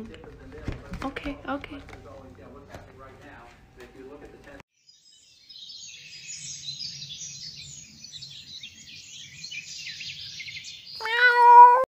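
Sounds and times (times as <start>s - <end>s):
birds chirping and twittering: 4.7s - 11.2s.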